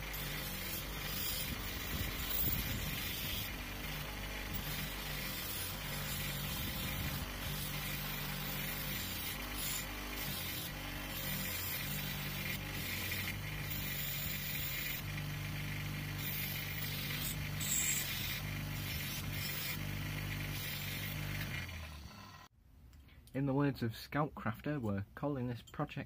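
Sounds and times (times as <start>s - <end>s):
wire brush scratching metal: 0.0s - 15.0s, 16.2s - 21.8s
bench grinder motor hum: 0.0s - 22.5s.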